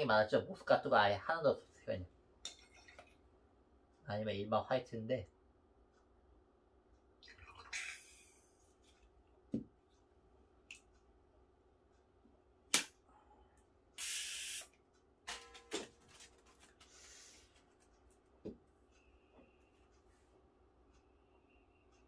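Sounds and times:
gas hissing: 14.0 - 14.7.

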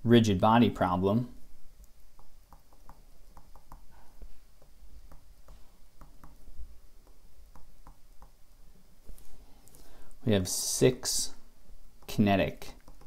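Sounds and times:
stylus tapping on tablet screen: 1.9 - 8.4, 12.8 - 13.0.

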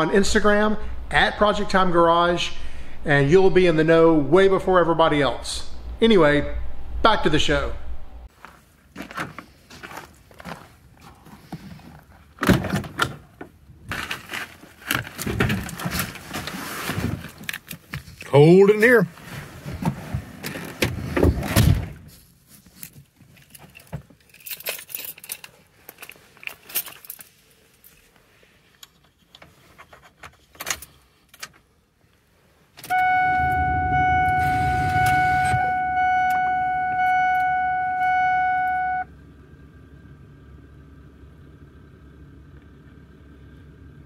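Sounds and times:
low hum: 0.0 - 8.3, 32.9 - 44.0
keys jingling: 23.5 - 27.3
dashboard warning chime: 32.9 - 39.1.

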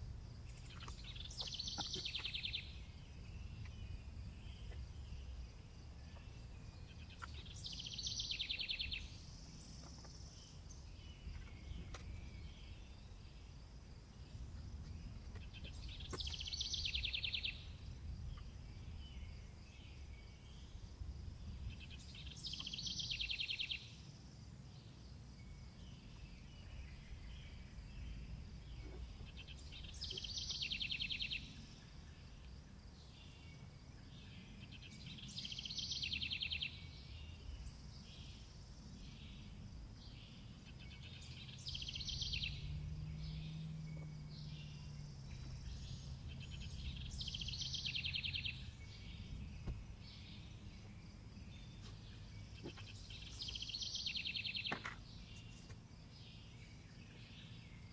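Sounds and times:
low background rumble: 0.0 - 23.0, 36.9 - 53.4
songbird trilling: 0.5 - 5.4, 6.1 - 13.2, 15.1 - 17.7, 21.7 - 23.9, 28.7 - 31.8, 40.3 - 55.8.

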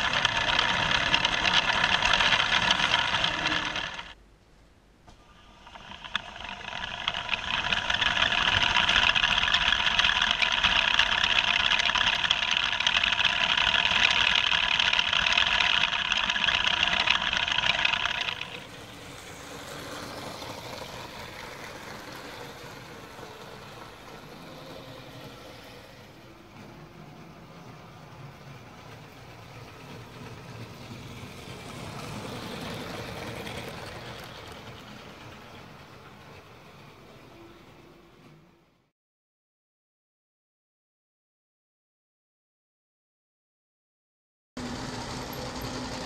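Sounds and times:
toy train motor whirring: 0.0 - 4.2, 5.4 - 37.2.

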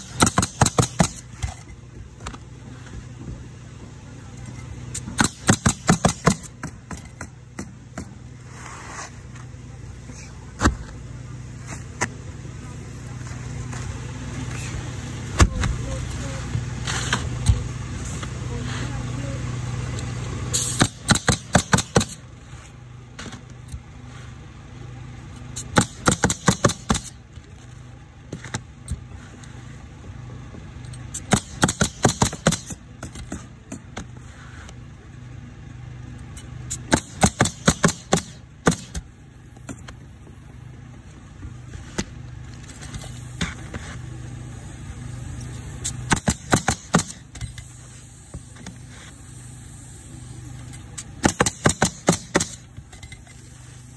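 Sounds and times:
nail gun driving nails into shingles: 0.0 - 2.4, 4.9 - 8.2, 20.5 - 22.2, 25.6 - 27.2, 31.1 - 34.2, 36.7 - 39.1, 45.8 - 47.7, 50.9 - 53.2
steady low hum: 0.0 - 53.9.

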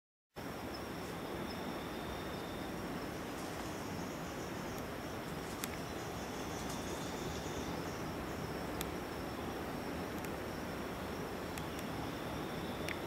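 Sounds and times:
constant hiss: 0.4 - 13.0
insects trilling high: 0.4 - 13.0
lower insect trill: 0.4 - 13.0
faint clicks: 10.1 - 10.4.

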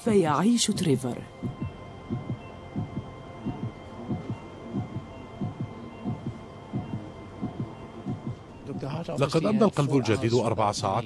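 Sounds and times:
faint steady hum: 0.0 - 11.0
heartbeat thumps: 0.7 - 9.3.

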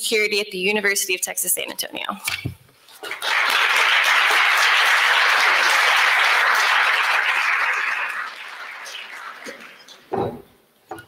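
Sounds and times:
audience applauding: 3.0 - 10.1.

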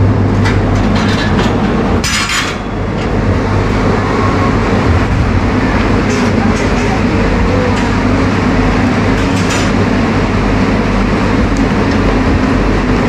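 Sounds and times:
funicular car rumbling: 0.0 - 13.0.

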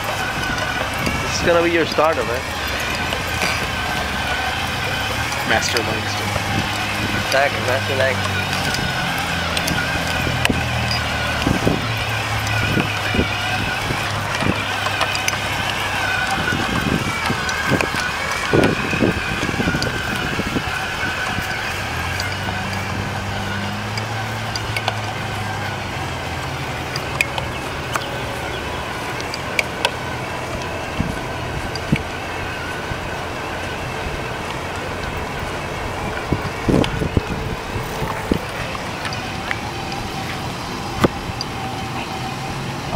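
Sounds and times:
wind buffeting microphone: 0.0 - 42.9.

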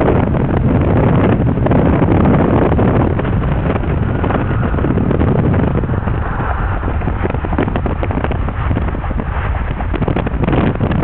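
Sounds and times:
car wind and tyre noise: 0.0 - 11.0
wind buffeting microphone: 0.0 - 11.0.

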